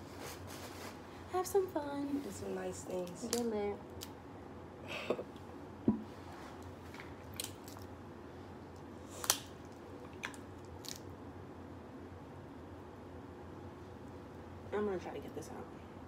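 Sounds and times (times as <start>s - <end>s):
crab shells cracking: 7.2s - 8.0s, 8.8s - 11.1s.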